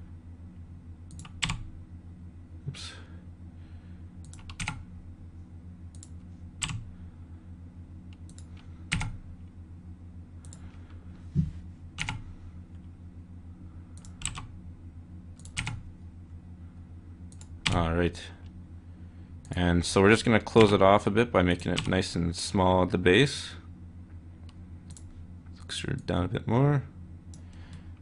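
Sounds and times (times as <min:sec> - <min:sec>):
steady low hum: 0:00.0 - 0:28.0
keyboard and mouse clicks: 0:01.1 - 0:01.6, 0:04.2 - 0:04.8, 0:05.9 - 0:06.8, 0:08.1 - 0:09.2, 0:12.0 - 0:12.2, 0:15.4 - 0:15.8.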